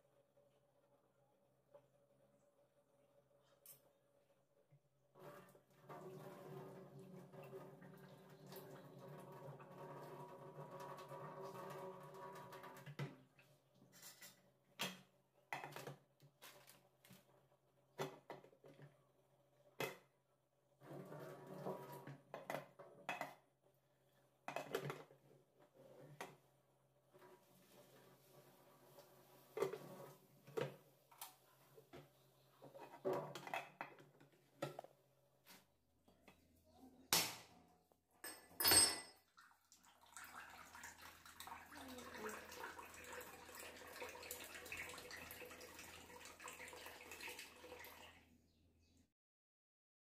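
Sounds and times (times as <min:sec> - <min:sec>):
water pouring into a steel sink: 0:05.2 - 0:13.0, 0:39.2 - 0:48.3
pot and lid clinking on metal sink: 0:38.2 - 0:39.2.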